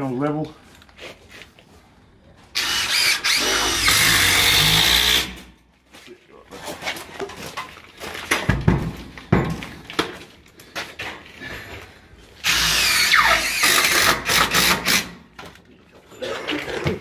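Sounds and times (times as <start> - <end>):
cordless drill driving a screw: 2.6 - 5.4, 12.4 - 15.1.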